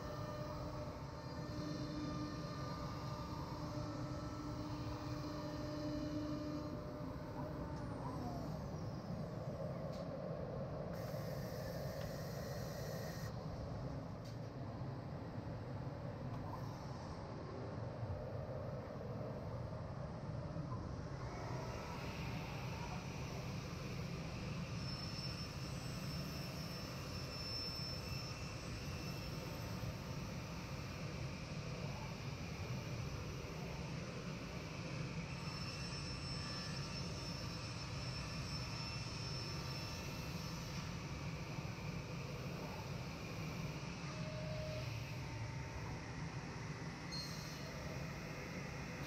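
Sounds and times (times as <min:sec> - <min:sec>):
cnc router running: 0:00.0 - 0:14.0, 0:19.0 - 0:49.0
high whine: 0:00.0 - 0:14.0
machine spindle hum: 0:00.0 - 0:49.0.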